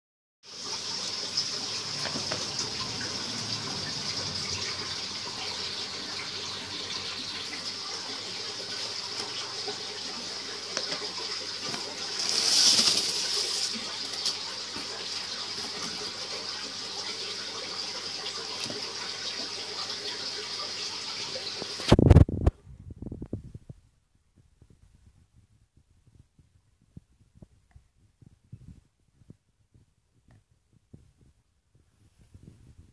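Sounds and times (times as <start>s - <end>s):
running water hissing: 0.5s - 22.0s.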